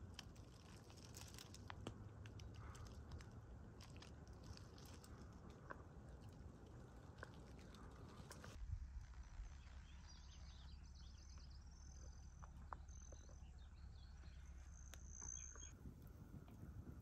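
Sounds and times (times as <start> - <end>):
low background rumble: 0.0 - 17.0
songbird chirps and trills: 7.6 - 17.0.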